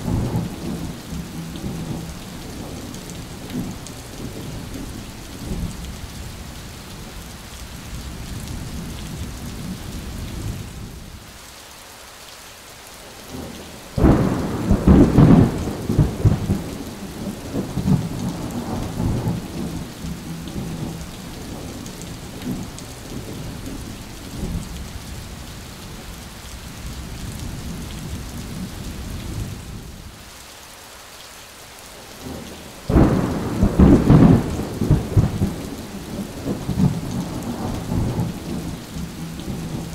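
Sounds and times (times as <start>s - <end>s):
thunder rumbling: 0.0s - 6.0s, 14.0s - 24.9s, 32.2s - 39.9s
heavy rain falling: 0.0s - 39.9s.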